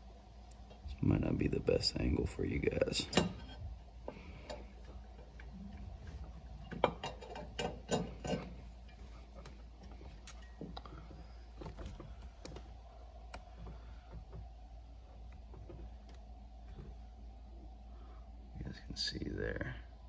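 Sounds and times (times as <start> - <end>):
metal part clicking and knocking: 6.7 - 8.6.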